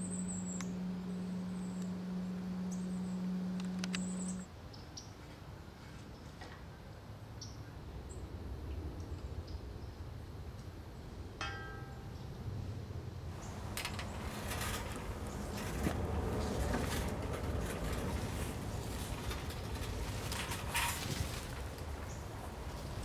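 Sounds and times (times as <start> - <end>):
faint bird chirps: 0.0 - 5.1
chain hoist clicks and rattles: 13.4 - 22.3.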